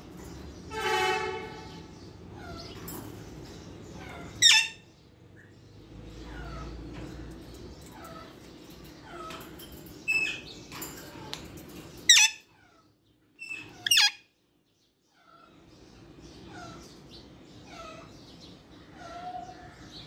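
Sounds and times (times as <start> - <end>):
parakeet screeches: 4.0 - 4.8, 13.4 - 14.3.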